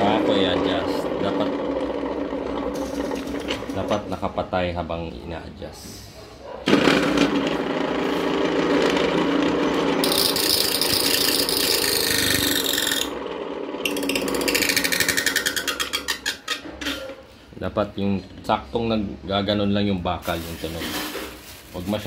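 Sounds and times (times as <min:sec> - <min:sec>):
grinder plates scraping metal: 0:08.5 - 0:13.2, 0:13.8 - 0:17.3.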